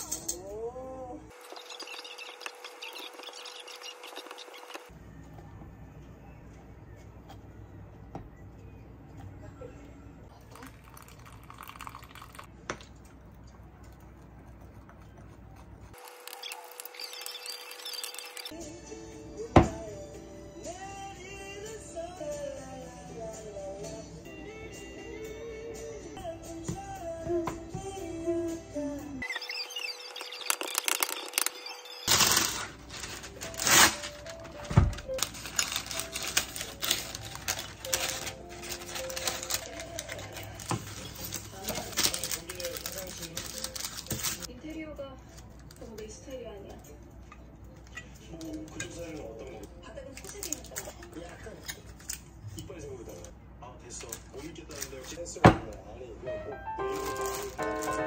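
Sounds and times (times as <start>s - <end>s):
hot water pouring: 10.4s - 12.5s
paper rustling and crinkling: 30.2s - 44.5s, 50.1s - 52.3s, 54.1s - 55.2s, 56.8s - 58.0s
paper tearing: 30.2s - 44.5s, 56.9s - 58.0s.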